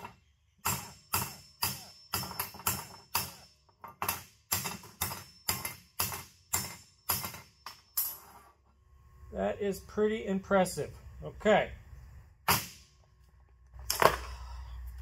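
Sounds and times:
hammer striking cast iron: 0.6s - 7.8s.

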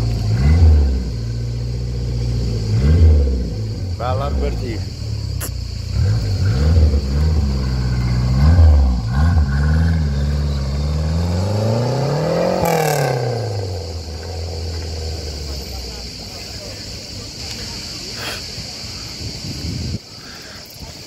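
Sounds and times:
car engine revving: 0.0s - 16.4s.

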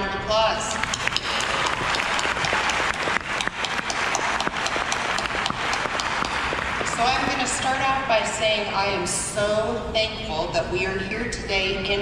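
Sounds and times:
audience applauding: 0.8s - 7.7s.

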